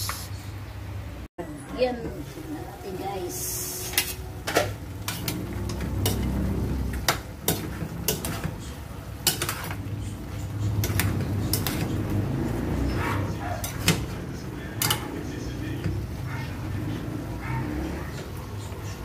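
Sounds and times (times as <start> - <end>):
metal spoon scraping pot: 3.7 - 12.1, 12.7 - 15.3.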